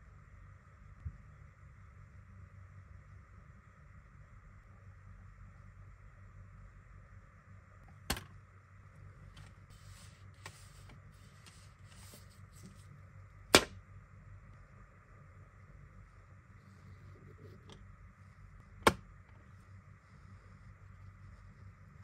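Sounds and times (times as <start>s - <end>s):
paper insert rustling: 9.4s - 12.9s.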